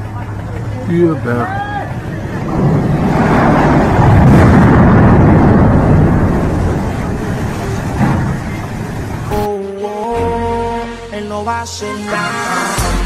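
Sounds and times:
crane collapsing with loud crash: 2.2 - 9.4.

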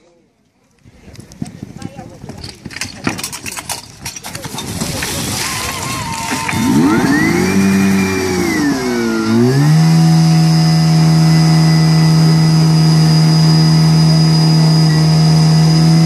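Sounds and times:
pump engine revving: 4.6 - 16.0.

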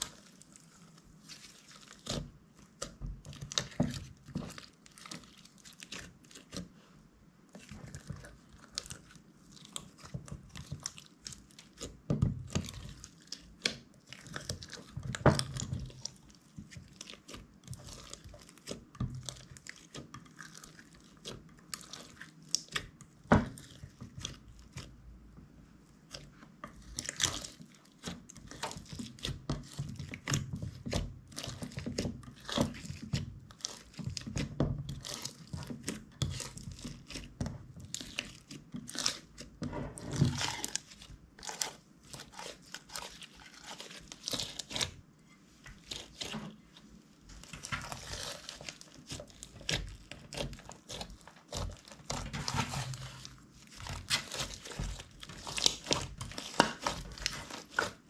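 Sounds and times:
slime being kneaded by hand: 0.0 - 58.0.

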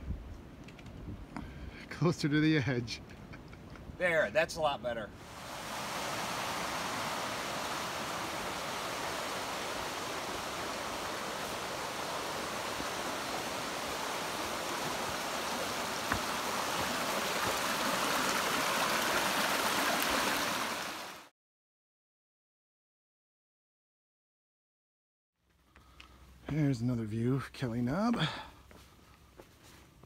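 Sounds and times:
creek rushing over rocks: 5.2 - 21.3.

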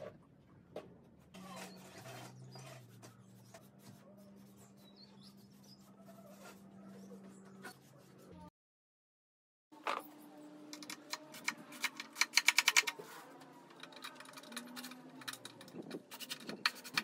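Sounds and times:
scratching and rubbing on wood: 1.4 - 8.4, 11.0 - 17.0.

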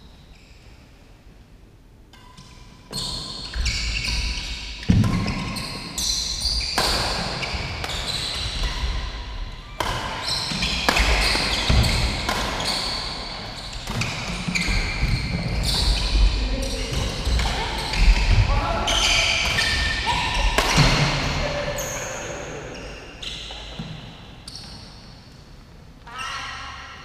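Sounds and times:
racket hitting shuttlecock: 6.8 - 9.0, 9.8 - 13.2, 19.4 - 21.4
shoes squeaking: 9.6 - 25.0.

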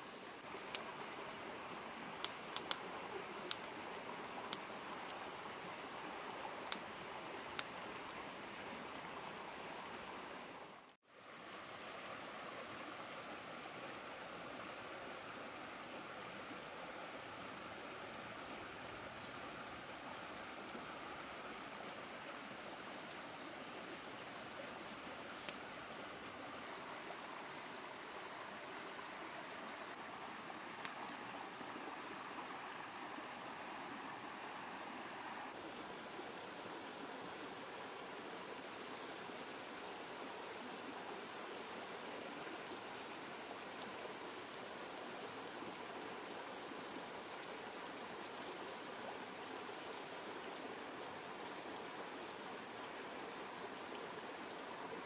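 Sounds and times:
stream rushing over rocks: 0.0 - 55.0
campfire crackling and popping: 0.5 - 1.0, 2.1 - 5.9, 6.6 - 9.1.

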